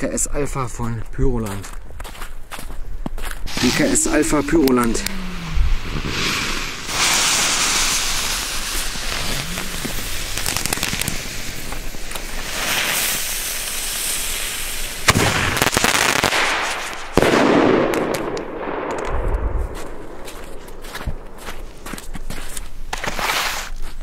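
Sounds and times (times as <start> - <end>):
fuse hissing: 3.5 - 15.1
firework bangs: 3.5 - 21.9.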